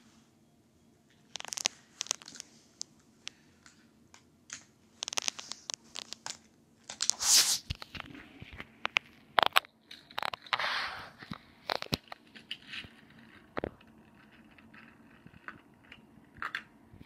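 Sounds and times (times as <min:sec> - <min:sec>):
toy cars clicking and knocking: 0:11.7 - 0:16.8.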